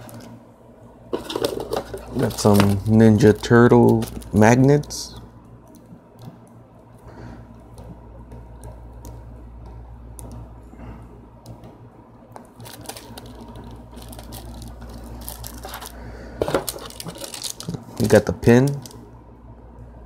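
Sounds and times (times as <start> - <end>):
steady low hum: 0.0 - 20.0
plastic crinkling: 1.2 - 5.0, 12.4 - 19.1.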